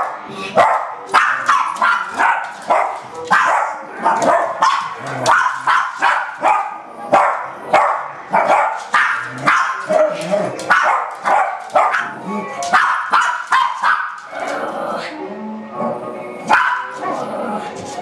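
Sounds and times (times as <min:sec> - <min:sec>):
small dogs barking: 0:00.0 - 0:14.3, 0:16.5 - 0:17.3.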